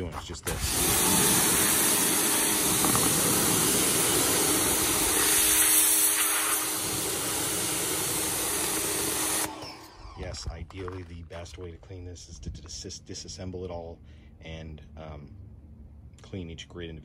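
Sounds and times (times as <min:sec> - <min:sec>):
pressure washer spray hiss: 0:00.7 - 0:09.6.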